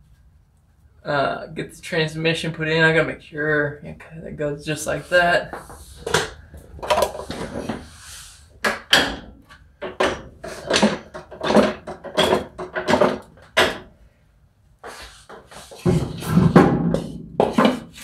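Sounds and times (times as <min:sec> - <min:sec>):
metal and wood knocks and clunks: 0:08.6 - 0:13.9, 0:15.8 - 0:18.0.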